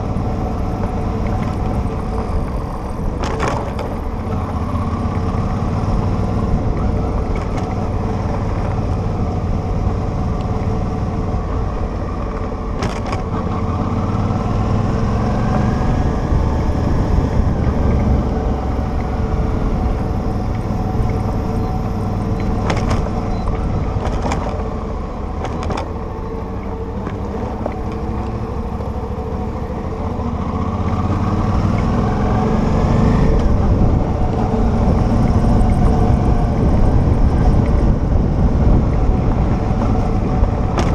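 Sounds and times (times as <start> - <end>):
wind and road rumble: 0.0 - 40.9
sharp knocks from bumpy road: 0.8 - 4.3, 12.2 - 13.7, 22.2 - 24.7, 25.4 - 26.0, 38.7 - 40.9.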